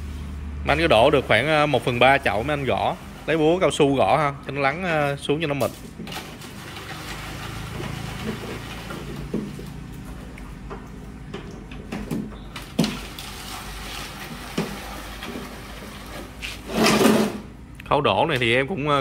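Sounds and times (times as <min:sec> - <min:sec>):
wet mortar being shovelled: 0:13.1 - 0:17.5.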